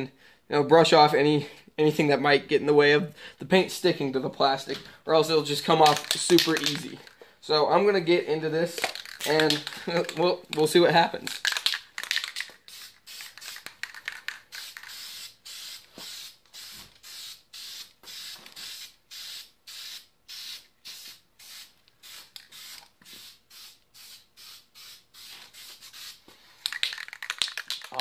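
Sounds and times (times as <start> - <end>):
spray paint can bursts: 5.8 - 7.0, 8.8 - 10.6, 11.2 - 28.0.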